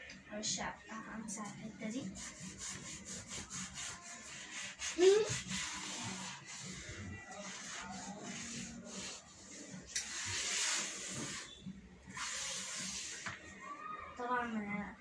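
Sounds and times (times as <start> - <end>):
toothbrush scrubbing wood: 2.1 - 11.5.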